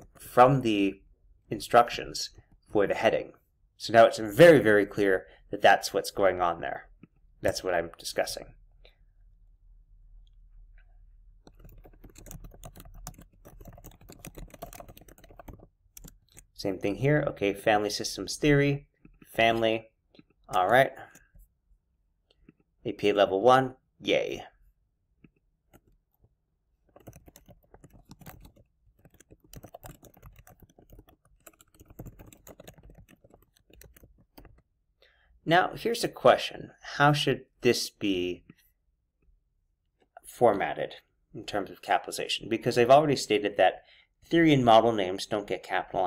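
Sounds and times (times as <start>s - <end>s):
faint typing on keyboard: 0.0s - 0.4s, 2.2s - 2.7s, 10.2s - 17.1s, 17.7s - 21.5s, 25.2s - 35.2s.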